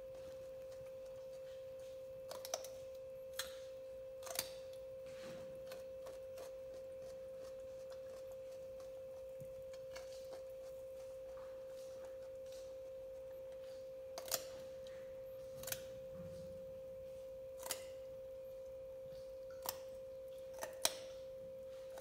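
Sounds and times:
faint chewing clicks: 0:00.0 - 0:04.8
monkey crunching raw carrot: 0:00.0 - 0:16.6, 0:17.3 - 0:22.0
steady single-pitched hum: 0:00.0 - 0:22.0.

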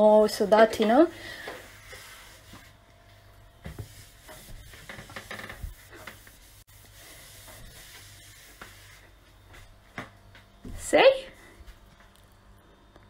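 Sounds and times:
cloth rubbing on steel: 0:01.6 - 0:02.8, 0:03.6 - 0:09.2.

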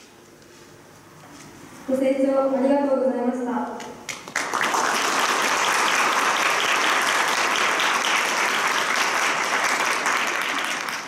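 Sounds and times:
audience applauding: 0:04.1 - 0:11.0.

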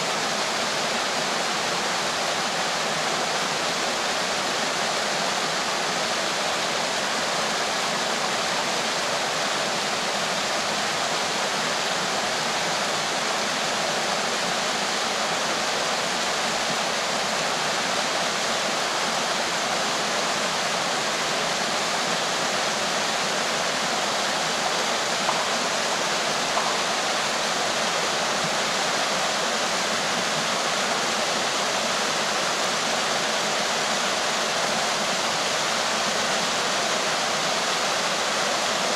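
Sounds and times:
waterfall rushing over rocks: 0:00.0 - 0:38.9.

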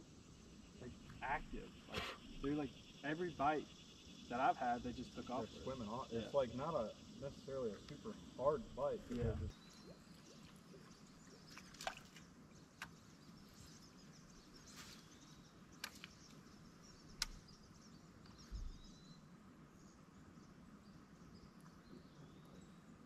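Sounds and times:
light sharp clicks: 0:15.8 - 0:16.4, 0:17.2 - 0:17.4.

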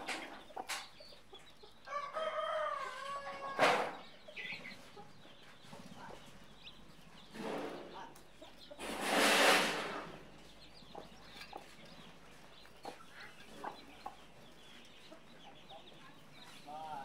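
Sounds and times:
chicks peeping: 0:00.0 - 0:17.0
loud rushing noise: 0:08.8 - 0:10.2.

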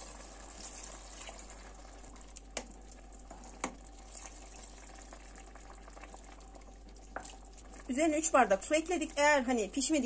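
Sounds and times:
water pouring into a pot: 0:00.0 - 0:02.3, 0:03.0 - 0:07.9.

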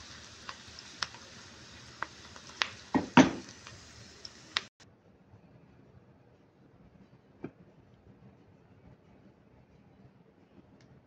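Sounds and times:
onions sizzling in oil: 0:00.0 - 0:04.7
knock against pan: 0:02.9 - 0:03.5.

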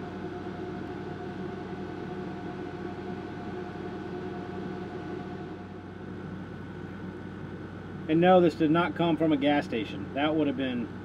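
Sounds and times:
air conditioner humming: 0:00.0 - 0:11.0.

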